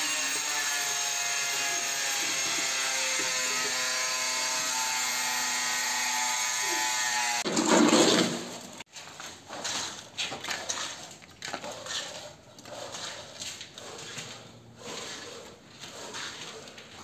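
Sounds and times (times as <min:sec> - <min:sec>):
wet mortar sliding and slopping: 0:08.9 - 0:17.0.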